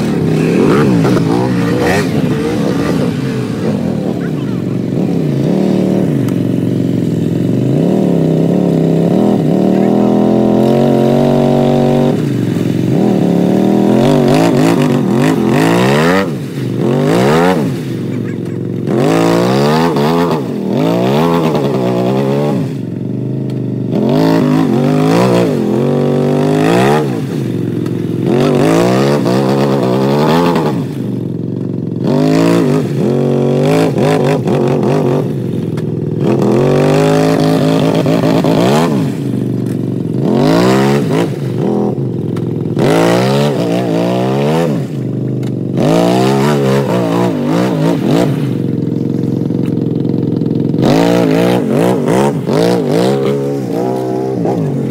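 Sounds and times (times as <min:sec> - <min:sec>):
quad engines revving: 0:00.0 - 0:54.9.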